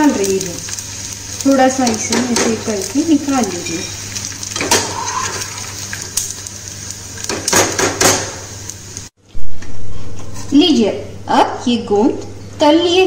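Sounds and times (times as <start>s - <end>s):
ghee sizzling in a pan: 0.0s - 9.2s.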